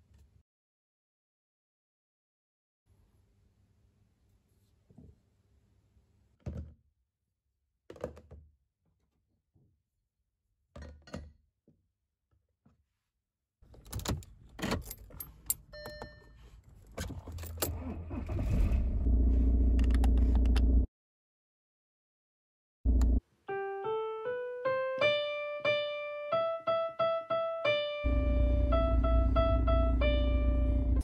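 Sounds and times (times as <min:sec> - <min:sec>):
keys jangling: 0:13.8 - 0:16.0, 0:16.6 - 0:17.8
car engine starting and running: 0:16.9 - 0:20.9, 0:22.9 - 0:23.2, 0:28.1 - 0:31.0.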